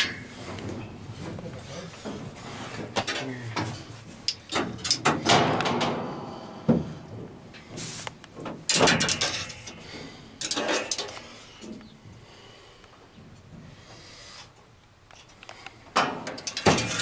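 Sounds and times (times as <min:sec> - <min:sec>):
knocks and clunks on sheet metal: 0:04.5 - 0:07.4, 0:08.4 - 0:09.5, 0:16.0 - 0:17.0.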